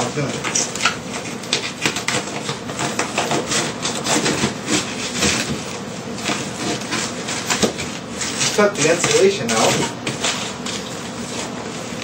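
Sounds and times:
paper facing crackling: 0.0 - 12.0
wet insulation rustling and crinkling: 0.0 - 12.0.

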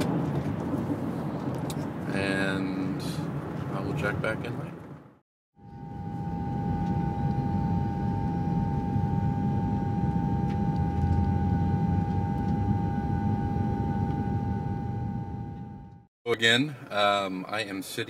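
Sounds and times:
low rumble: 0.0 - 16.1
mid-pitched droning hum: 5.6 - 16.1.

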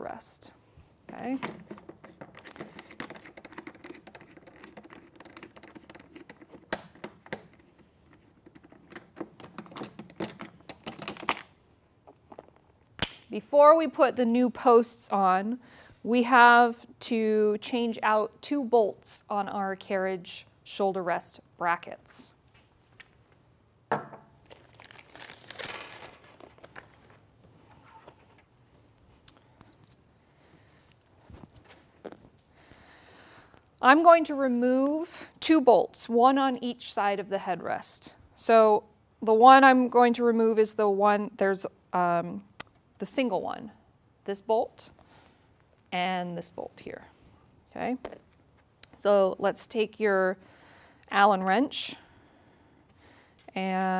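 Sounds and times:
metal tools clinking: 24.6 - 27.2.

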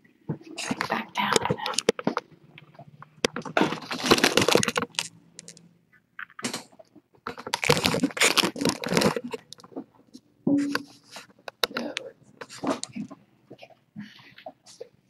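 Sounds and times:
rapid rustling and clicking: 0.6 - 5.6, 6.2 - 9.9.

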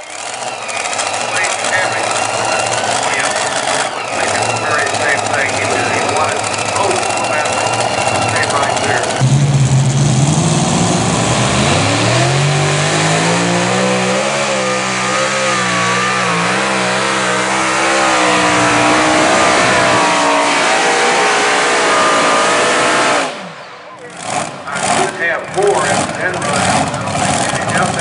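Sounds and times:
tractor engines at full throttle: 0.0 - 28.0.

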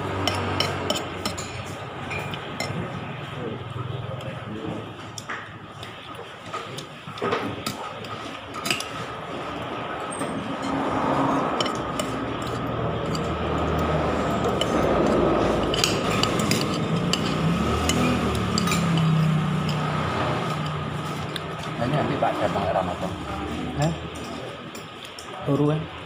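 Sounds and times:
metal spoon scraping a plate: 0.2 - 2.8, 10.0 - 21.7.

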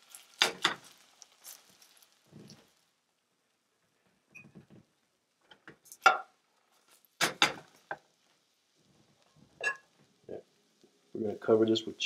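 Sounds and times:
dishes and utensils clinking: 9.6 - 9.9.

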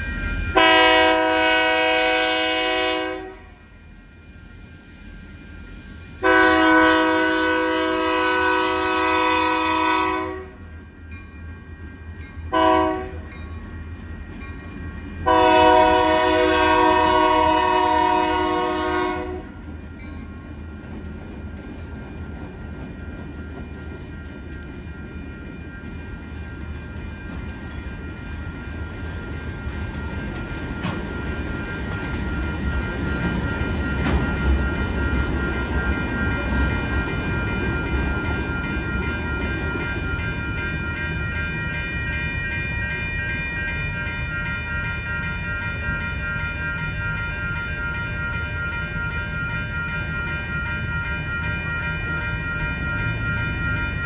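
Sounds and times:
freight train rumble and wheel clatter: 0.0 - 54.0
train air horn blasts: 0.6 - 3.6, 6.2 - 10.6, 12.5 - 13.3, 15.3 - 19.5.

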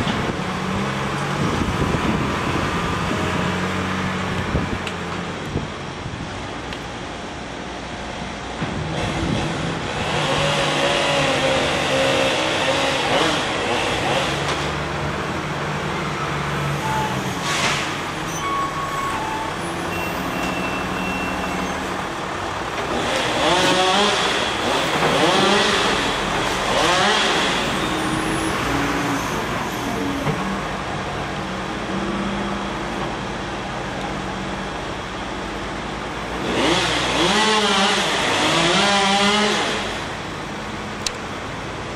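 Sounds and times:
wheel loader engine revving: 8.9 - 33.1.

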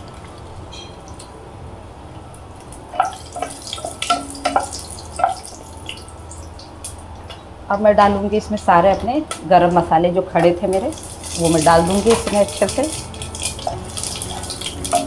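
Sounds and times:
spices crackling in hot oil: 2.0 - 7.5, 9.2 - 15.0.

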